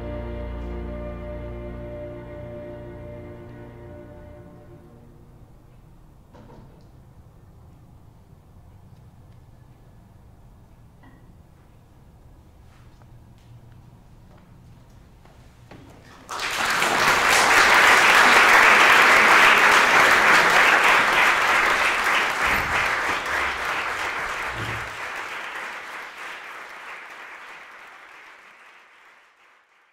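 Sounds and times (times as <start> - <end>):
audience applause: 16.1 - 29.9.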